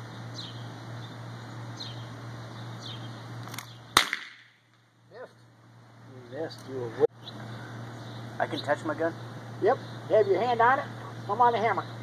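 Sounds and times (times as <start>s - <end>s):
revolver gunshot: 3.5s - 4.6s.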